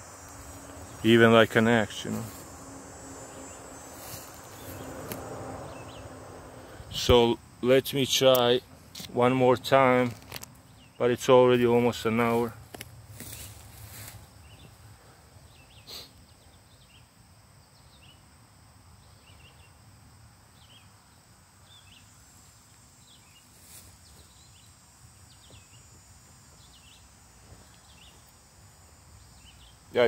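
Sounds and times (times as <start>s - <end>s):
steady low rumble: 0.0s - 7.2s.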